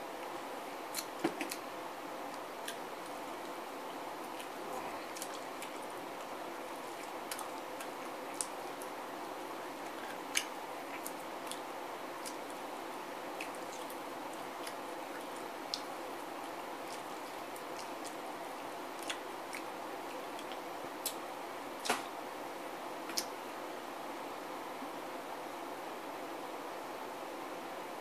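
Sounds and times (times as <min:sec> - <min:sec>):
steady background hiss: 0:00.0 - 0:28.0
wet chewing and lip smacks: 0:00.9 - 0:01.6, 0:02.4 - 0:03.6, 0:04.2 - 0:09.0, 0:09.7 - 0:12.6, 0:13.3 - 0:18.2, 0:19.0 - 0:19.7.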